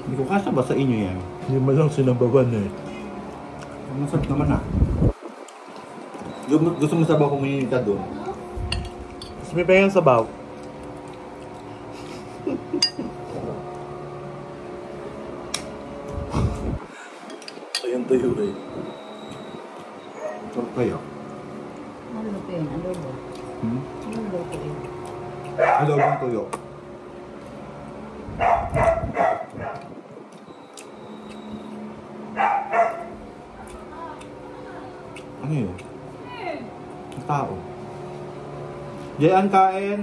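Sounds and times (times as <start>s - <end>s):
steady hum: 0.0s - 40.0s
dishes and cutlery clinking: 8.7s - 9.5s
dog barking: 20.2s - 20.5s, 25.6s - 26.4s, 28.4s - 29.9s, 32.4s - 33.2s.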